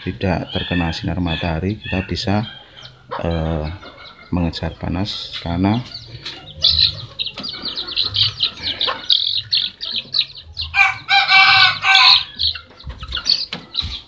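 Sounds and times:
chickens chirping and clucking: 0:00.0 - 0:14.0
rooster crowing: 0:10.5 - 0:12.5.

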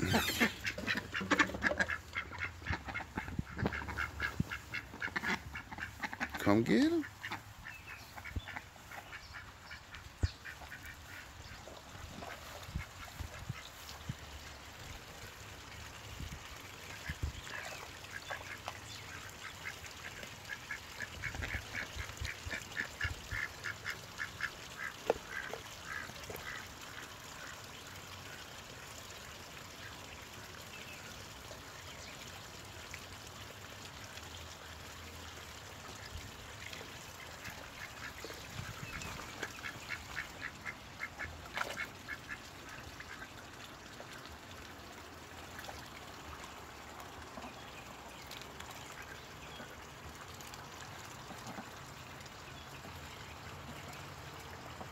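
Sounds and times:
ducks quacking: 0:00.0 - 0:13.9, 0:16.9 - 0:26.9, 0:37.2 - 0:43.4.

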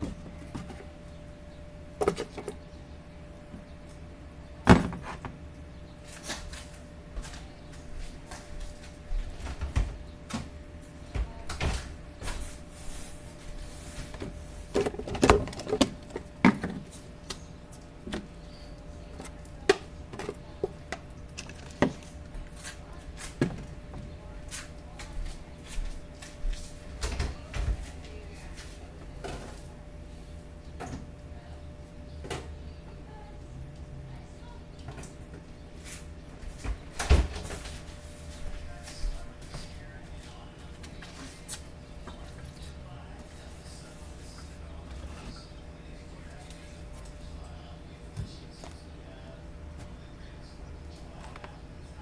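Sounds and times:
faint steady hum: 0:00.0 - 0:52.0
items clattering on a counter: 0:02.0 - 0:02.6, 0:14.1 - 0:17.0.

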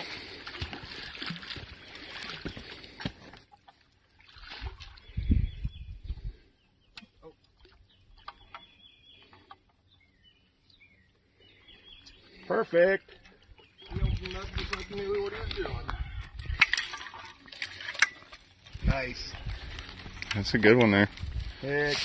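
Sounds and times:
small splashes and ticks: 0:00.0 - 0:05.1, 0:06.9 - 0:09.8, 0:13.0 - 0:21.6.

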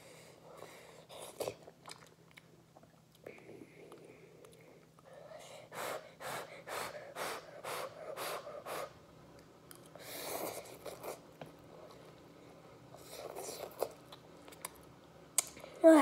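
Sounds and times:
child panting through mouth: 0:05.5 - 0:08.9
soft mouth noises: 0:12.9 - 0:14.8.

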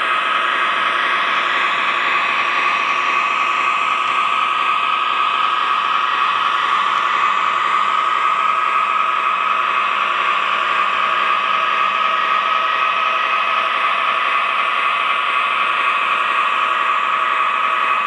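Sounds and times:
model locomotive whirring: 0:00.0 - 0:18.0.

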